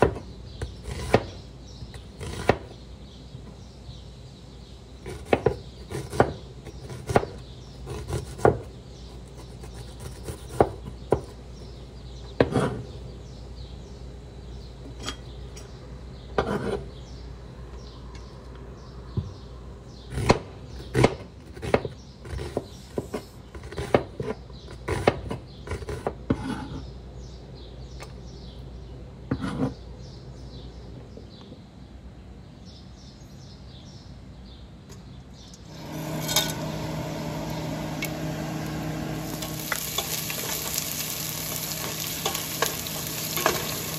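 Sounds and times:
knife chopping on wooden board: 0:00.0 - 0:01.4, 0:02.2 - 0:02.7, 0:05.0 - 0:08.7, 0:09.3 - 0:11.4, 0:20.1 - 0:26.6.

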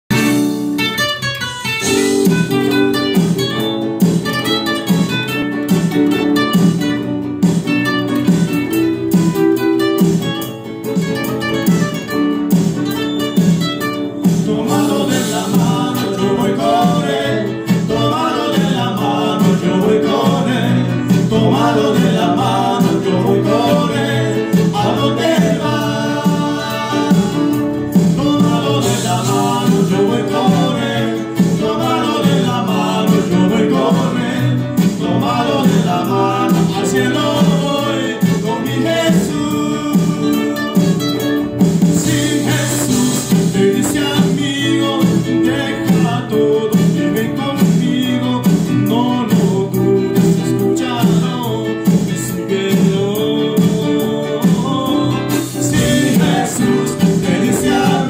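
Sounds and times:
acoustic guitars playing: 0:00.0 - 0:58.0
steady bass line: 0:01.8 - 0:58.0
person singing: 0:14.0 - 0:41.2, 0:41.8 - 0:58.0.

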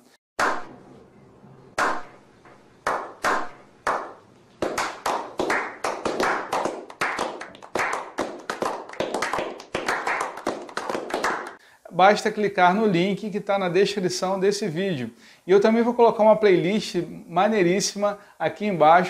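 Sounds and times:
men clapping: 0:02.9 - 0:11.6.

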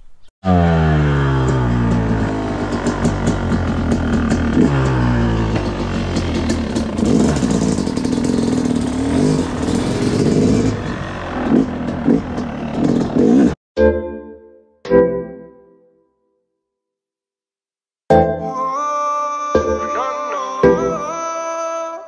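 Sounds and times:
dirt bike engine revving: 0:00.4 - 0:13.6.

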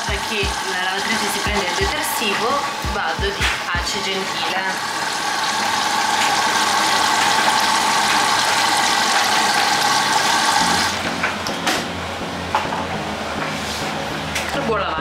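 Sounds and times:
water rushing into washing machine: 0:00.0 - 0:11.1
liquid being poured: 0:04.8 - 0:11.0.

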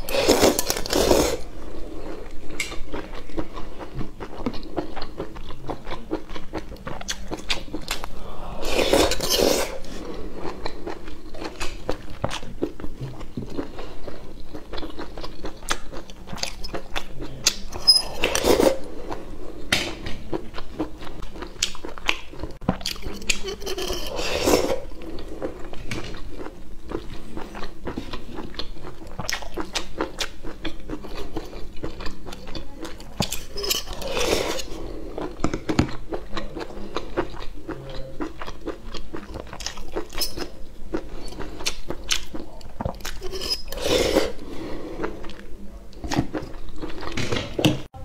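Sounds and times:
wet chewing and mouth smacking: 0:02.2 - 0:08.2, 0:10.4 - 0:17.8, 0:20.2 - 0:23.5, 0:24.9 - 0:33.6, 0:34.6 - 0:43.2.

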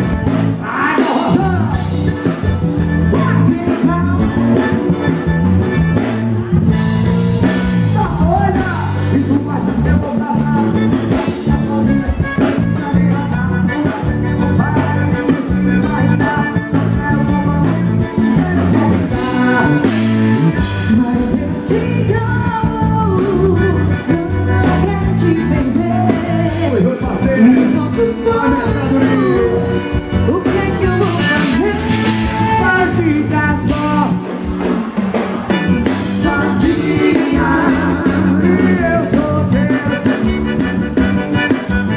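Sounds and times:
accordion and band playing: 0:00.0 - 0:41.9
woman singing: 0:20.9 - 0:30.5, 0:36.2 - 0:40.1.

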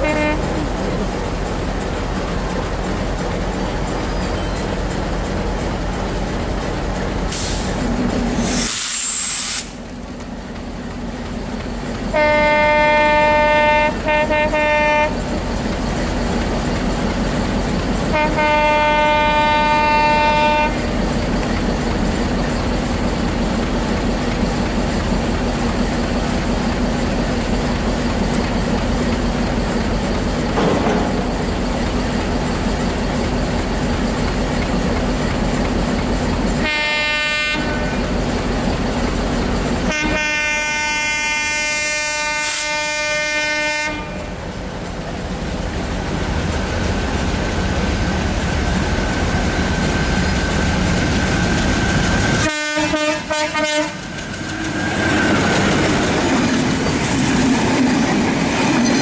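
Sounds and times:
multi-tone train horn: 0:00.0 - 0:00.7, 0:12.1 - 0:15.3, 0:18.1 - 0:21.0, 0:36.6 - 0:38.1, 0:39.9 - 0:44.4, 0:52.4 - 0:54.1
diesel locomotive engine: 0:00.0 - 0:59.0.

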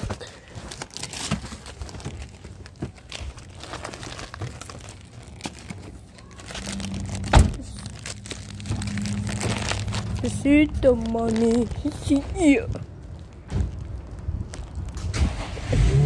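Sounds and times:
material rustling and crinkling: 0:00.0 - 0:15.2
low steady hum: 0:03.0 - 0:14.9.

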